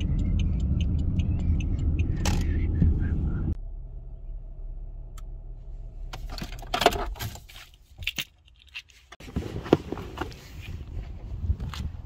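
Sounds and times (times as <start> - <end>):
low hum: 0.0 - 6.7.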